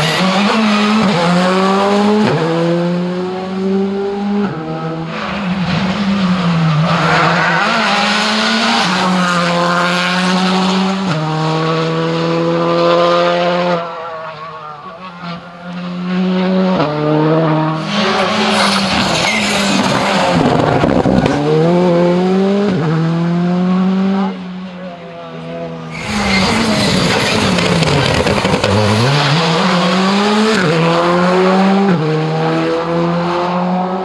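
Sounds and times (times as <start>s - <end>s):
rally car engines revving: 0.0s - 34.0s
tyre noise on road: 17.7s - 22.0s, 25.9s - 31.2s.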